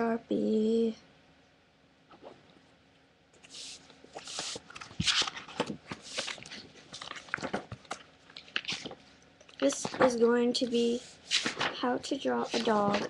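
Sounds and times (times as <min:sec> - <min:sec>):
paper rustling and scraping: 0:03.4 - 0:09.0, 0:09.6 - 0:13.0.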